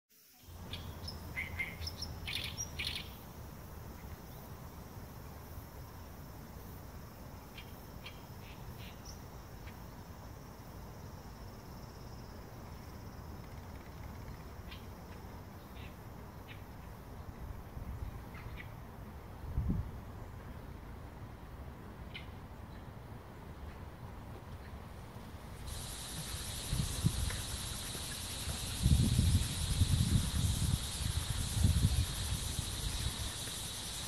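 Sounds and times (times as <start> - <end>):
high insect drone: 0.1 - 21.2, 24.9 - 34.0
bird chirps: 0.4 - 3.2.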